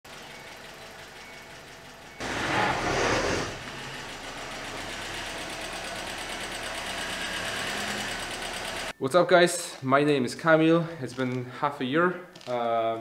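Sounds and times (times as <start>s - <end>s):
car engine starting and revving: 2.2s - 8.9s.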